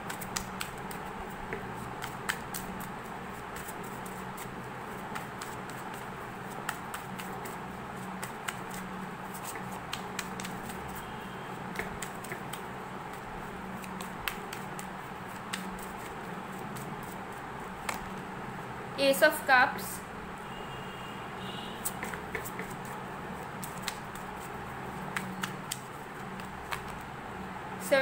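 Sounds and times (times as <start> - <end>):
cards being shuffled: 0.0 - 11.0, 11.7 - 18.2, 21.8 - 27.1
steady low hum: 0.0 - 20.5.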